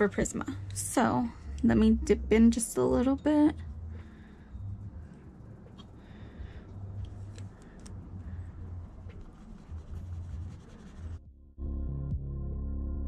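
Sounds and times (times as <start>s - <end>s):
brush strokes on paper: 8.3s - 11.2s.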